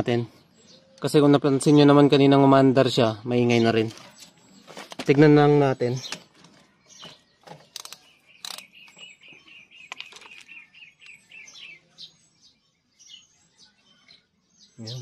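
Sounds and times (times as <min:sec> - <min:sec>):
small bird chirping: 0:00.0 - 0:15.0
engine parts clicking: 0:06.0 - 0:09.2, 0:09.8 - 0:11.2.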